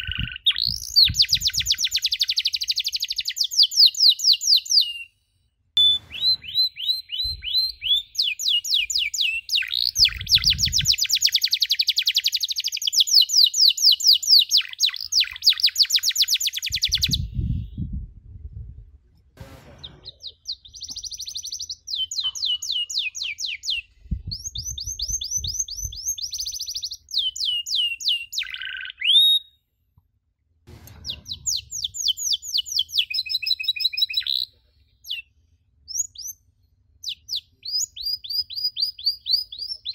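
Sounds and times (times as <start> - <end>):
canary singing trills: 0.0 - 5.1, 5.8 - 17.3, 19.8 - 29.5.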